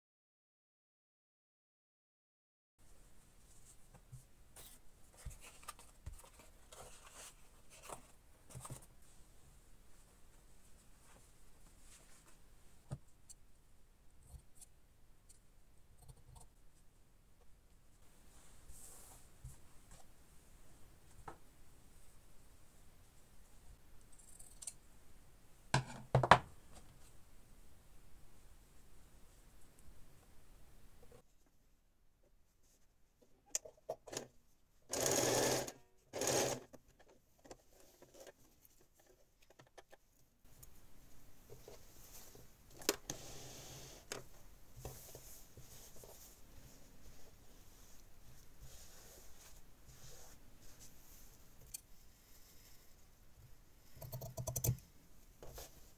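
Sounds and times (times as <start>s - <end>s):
electric sewing machine stitching: 34.9s - 36.6s.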